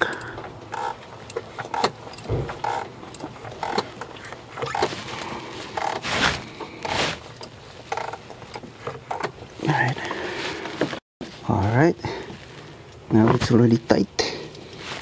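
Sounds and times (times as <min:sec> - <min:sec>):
wrench clicking and scraping: 0:00.0 - 0:04.9, 0:05.7 - 0:06.0, 0:06.8 - 0:09.4.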